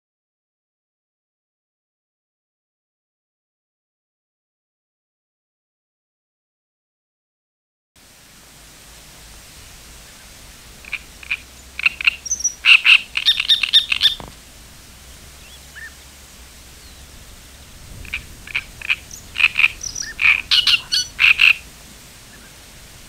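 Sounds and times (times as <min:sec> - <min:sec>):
steady background hiss: 0:08.0 - 0:23.0
animal calls with pulsed notes: 0:10.8 - 0:22.7.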